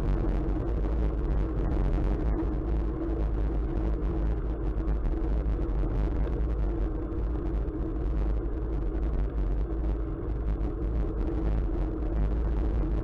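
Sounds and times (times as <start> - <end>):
low hum: 0.0 - 13.0
wind rumble: 0.0 - 13.0.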